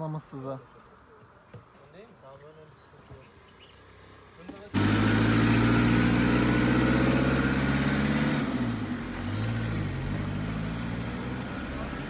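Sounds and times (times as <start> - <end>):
car engine running: 4.8 - 12.0.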